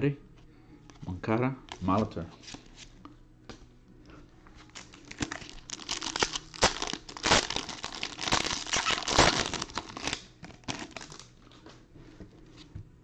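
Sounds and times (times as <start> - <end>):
foil wrapper tearing and crinkling: 4.7 - 11.3.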